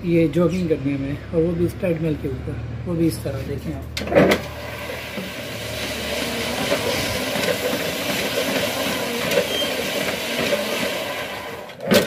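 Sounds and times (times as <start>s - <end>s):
treadmill belt rumbling: 4.4s - 11.8s.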